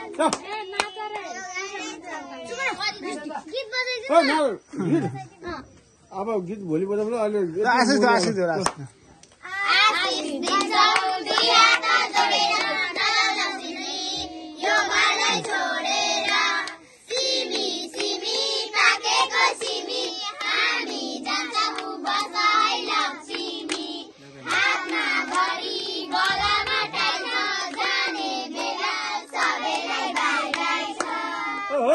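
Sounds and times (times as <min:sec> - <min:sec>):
hands clapping: 0:00.0 - 0:01.4, 0:08.2 - 0:09.4, 0:10.0 - 0:13.2, 0:15.2 - 0:15.6, 0:16.2 - 0:18.2, 0:19.4 - 0:31.3
girls singing together: 0:09.4 - 0:31.7.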